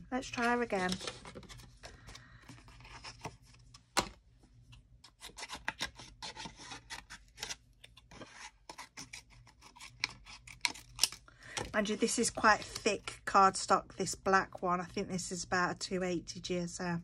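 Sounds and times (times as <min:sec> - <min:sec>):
card rustling: 0:00.2 - 0:04.2.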